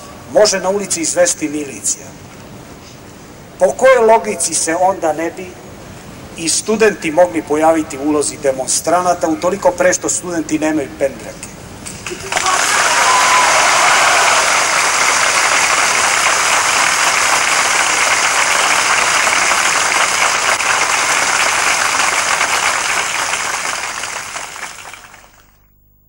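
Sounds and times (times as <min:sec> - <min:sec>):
large crowd applauding: 0:12.0 - 0:25.6.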